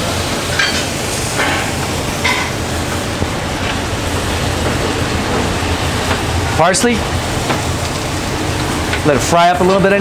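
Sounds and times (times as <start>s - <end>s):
low hum: 1.0s - 9.0s.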